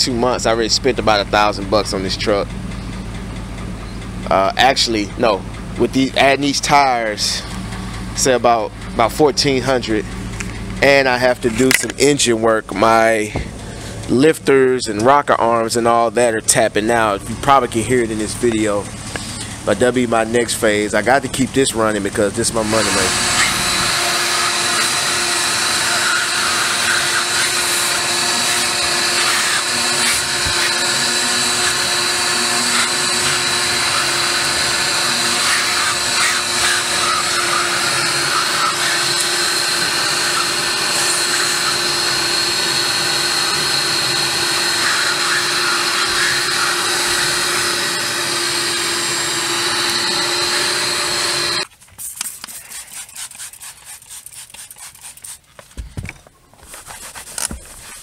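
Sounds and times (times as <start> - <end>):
vacuum cleaner whining: 20.4 - 51.7.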